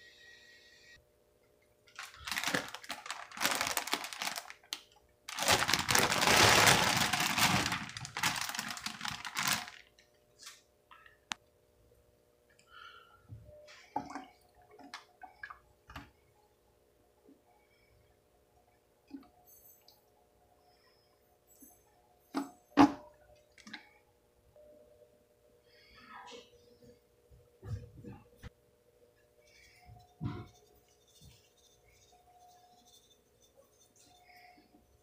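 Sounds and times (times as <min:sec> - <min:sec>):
plastic bag crinkling: 0:01.9 - 0:10.6
vegetables tumbling into a bowl: 0:02.0 - 0:09.8.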